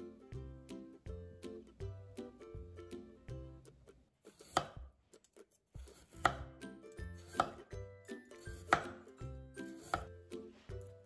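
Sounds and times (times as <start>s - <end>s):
knife chopping on wooden board: 4.3s - 4.9s, 5.8s - 6.6s, 7.2s - 7.7s, 8.5s - 9.1s, 9.7s - 10.2s.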